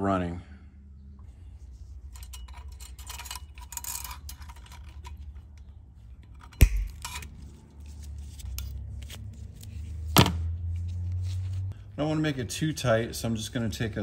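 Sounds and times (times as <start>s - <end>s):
spring wire snapping: 6.6s - 7.2s.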